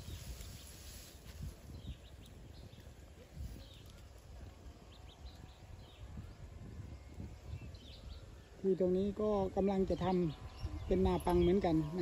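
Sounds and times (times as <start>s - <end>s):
elephant feet shuffling on dirt: 0.0s - 4.3s
birds chirping: 0.0s - 12.0s.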